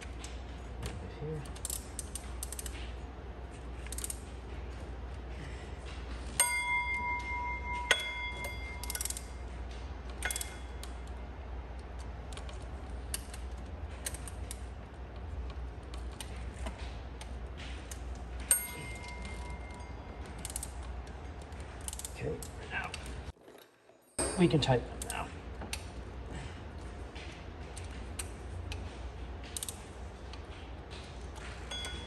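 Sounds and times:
steady low hum: 0.0s - 23.4s, 24.1s - 32.0s
metal tools ticking and clicking: 1.2s - 3.0s, 3.8s - 4.8s, 6.3s - 23.4s, 24.1s - 26.1s, 27.6s - 32.0s
sharp metal clinks: 6.3s - 9.6s, 10.2s - 11.1s, 18.4s - 20.9s, 24.0s - 25.2s, 31.4s - 32.0s.

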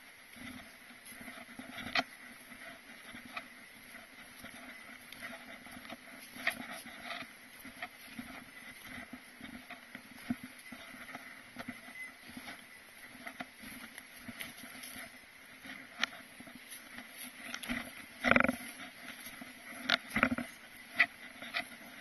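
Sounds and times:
footsteps on snowy trail: 0.0s - 22.0s.

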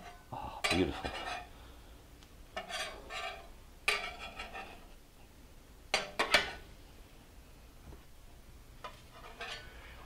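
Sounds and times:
metal spatula scraping griddle: 0.0s - 1.5s, 2.6s - 4.9s, 8.8s - 10.0s.

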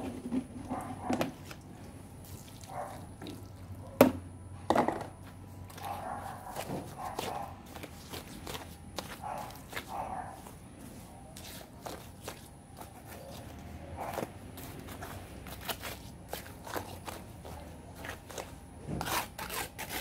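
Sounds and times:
hand tool scraping soil: 13.1s - 20.0s.

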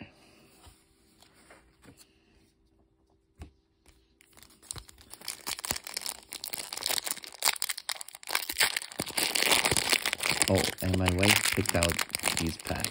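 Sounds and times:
foil wrapper crinkling and tearing: 4.2s - 12.9s.

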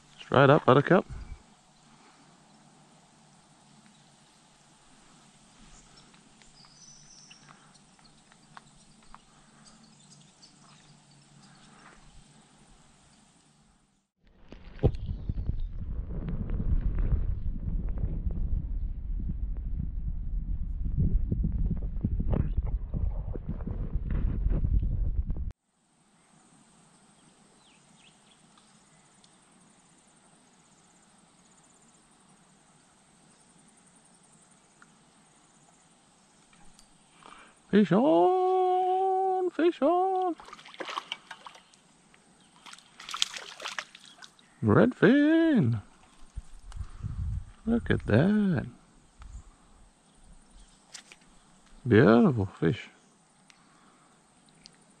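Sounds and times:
insect trill: 0.0s - 13.7s, 26.1s - 46.6s
short bird chirps: 5.7s - 12.2s
light clicks and rustles: 50.6s - 51.8s.

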